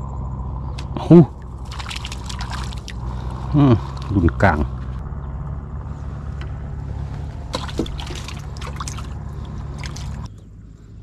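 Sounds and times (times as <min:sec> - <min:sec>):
steady low rumble: 0:00.0 - 0:11.0
water trickling: 0:01.3 - 0:04.1, 0:07.5 - 0:10.3.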